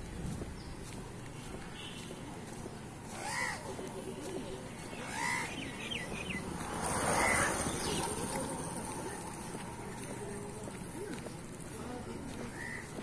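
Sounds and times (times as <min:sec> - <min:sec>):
crows cawing: 0:03.2 - 0:03.8, 0:04.9 - 0:06.0.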